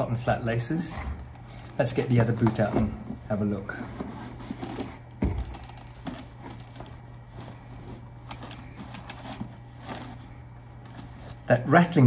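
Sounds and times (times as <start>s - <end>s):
cloth rustling: 0.9s - 11.6s
metal eyelets rattling and clicking: 4.6s - 7.0s
thump: 5.2s - 5.6s.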